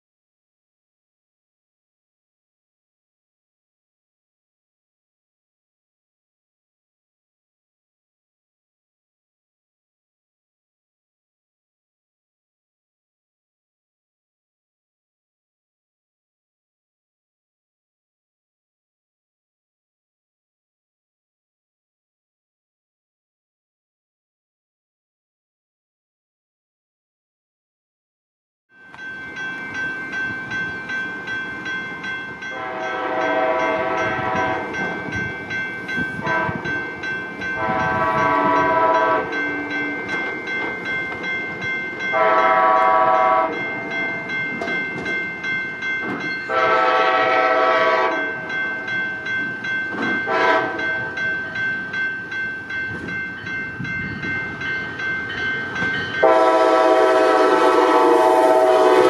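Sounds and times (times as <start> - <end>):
crossing warning bell ringing: 28.7 - 59.0
locomotive air horn blasts: 32.5 - 34.8, 36.2 - 36.7, 37.6 - 40.0, 42.1 - 43.6, 46.5 - 48.3, 50.3 - 51.1, 56.2 - 59.0.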